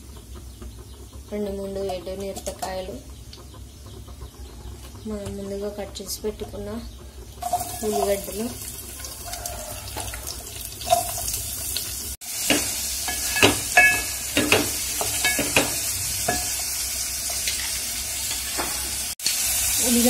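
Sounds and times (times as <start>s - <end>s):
spatula scraping a pot: 7.4s - 9.2s
onions sizzling in oil: 7.4s - 20.0s.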